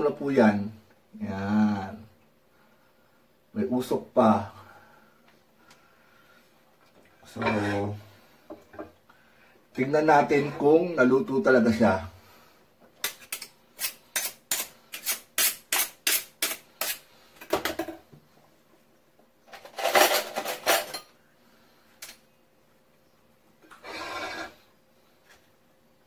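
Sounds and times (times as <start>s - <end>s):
kitchen utensils clinking: 19.6s - 21.1s.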